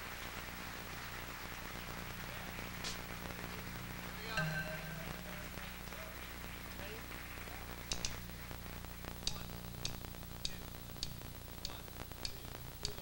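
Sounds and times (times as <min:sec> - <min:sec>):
low steady hum: 0:01.6 - 0:13.0
sparse percussion pulse: 0:04.4 - 0:06.4
soft high ticks: 0:09.2 - 0:13.0.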